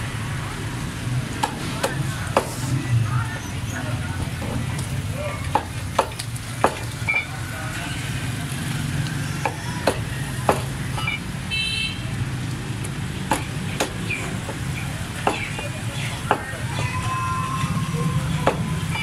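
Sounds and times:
background chatter: 0.0s - 19.0s
cleaver chopping on wooden block: 1.4s - 2.6s, 5.5s - 7.0s, 9.4s - 10.8s, 13.3s - 16.5s, 18.4s - 18.7s.

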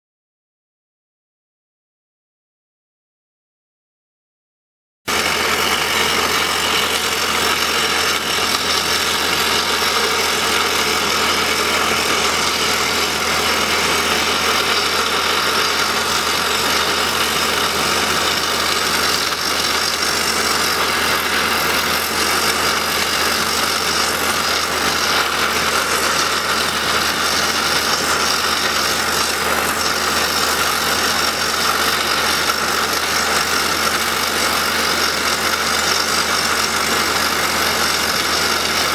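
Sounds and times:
hydraulic rock drill hammering: 5.1s - 38.9s
rig engine running: 5.1s - 38.9s.

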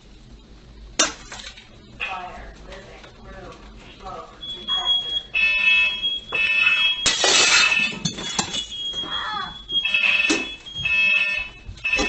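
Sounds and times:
smoke alarm beeping: 4.3s - 12.0s.

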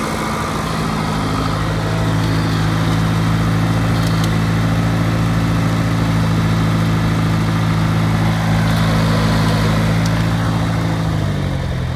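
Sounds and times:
tractor diesel engine idling: 0.0s - 11.9s.

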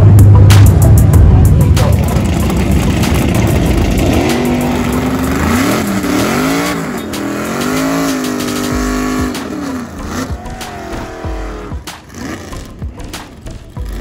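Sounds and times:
car engine revving hard: 2.2s - 13.1s.

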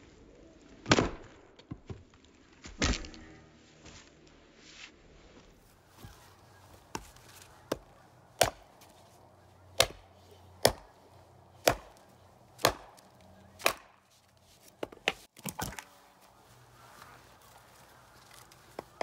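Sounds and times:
axe chopping wood: 6.9s - 9.0s, 9.7s - 14.0s.

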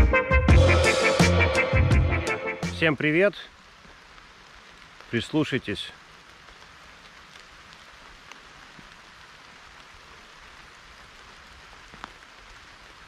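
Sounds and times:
light rain pattering: 2.8s - 13.0s
single raindrops: 3.5s - 13.0s.

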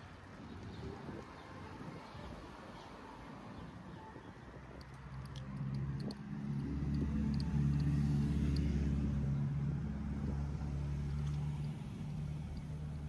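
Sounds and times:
engine humming: 4.6s - 13.0s.

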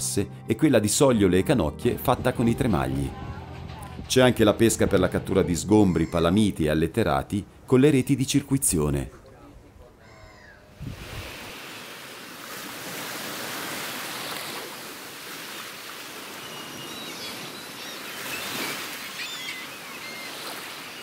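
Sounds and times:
high bird calls: 5.7s - 6.5s, 10.0s - 10.7s, 16.2s - 21.0s
sea surf washing: 10.7s - 21.0s.

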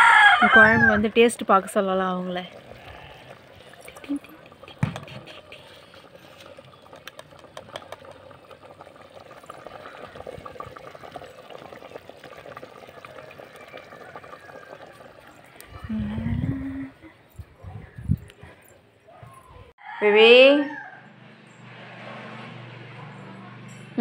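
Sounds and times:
curry bubbling in a pot: 1.2s - 15.9s.

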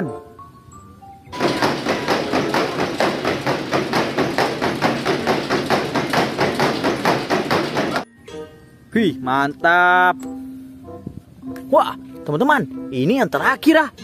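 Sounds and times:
horse hooves on treadmill belt: 1.4s - 8.0s.

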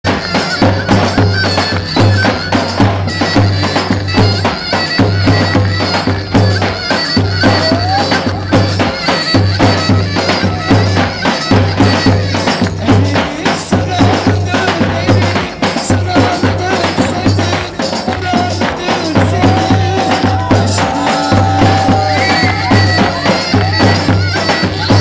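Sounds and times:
steady drum beat: 0.0s - 25.0s
shrill reedy wind instrument: 0.1s - 25.0s.

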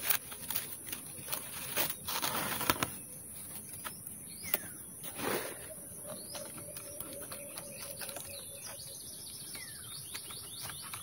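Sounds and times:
dry palm leaves rustling and crackling: 0.0s - 5.6s.

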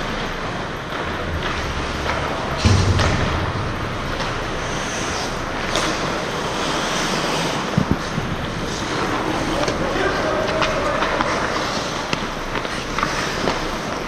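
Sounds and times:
dull thud: 2.6s - 4.8s
skates scraping on ice: 4.0s - 14.0s
hockey sticks and puck knocking: 5.6s - 14.0s.

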